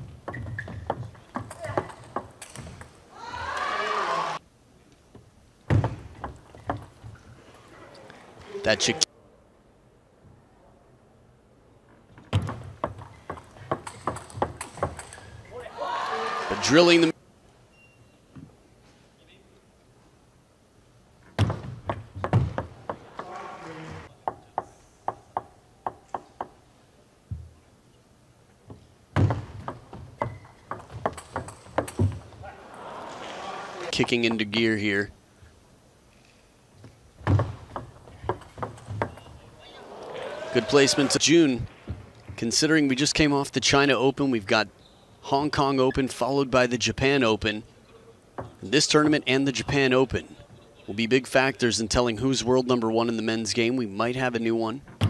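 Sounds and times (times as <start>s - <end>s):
table tennis ball bouncing: 0.0s - 2.9s, 12.3s - 15.4s, 21.4s - 23.4s, 29.2s - 32.3s
crowd cheering: 3.1s - 4.4s, 15.5s - 17.1s, 22.9s - 24.1s, 32.4s - 34.0s, 39.2s - 41.6s
ball hits on bat and table: 12.3s - 15.4s, 29.2s - 32.3s.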